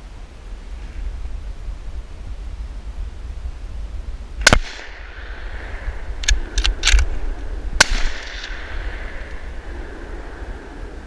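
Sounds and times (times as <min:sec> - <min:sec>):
wind rumbling on microphone: 0:00.0 - 0:11.0
rifle shot echoing: 0:04.4 - 0:09.6
rifle reloading clicks: 0:06.2 - 0:07.2.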